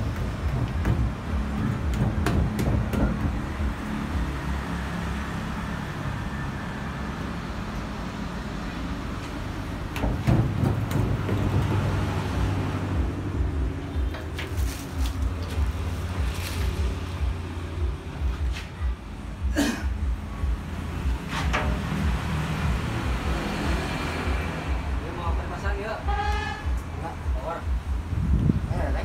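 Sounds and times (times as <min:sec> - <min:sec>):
background traffic rumble: 0:00.0 - 0:29.0
short knocks: 0:09.9 - 0:12.0.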